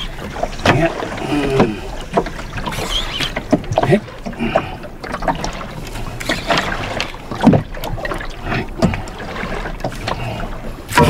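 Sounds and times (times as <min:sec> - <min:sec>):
boat motor hum: 0:00.0 - 0:11.0
water slapping against hull: 0:00.0 - 0:11.0.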